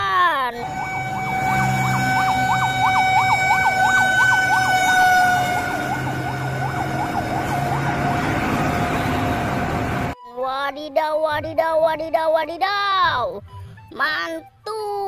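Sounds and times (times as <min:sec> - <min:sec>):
fire truck siren warbling: 0:00.6 - 0:10.2.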